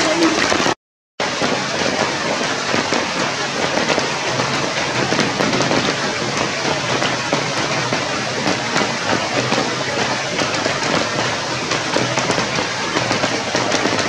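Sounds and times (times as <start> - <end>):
steady rain falling: 0.0 - 14.0.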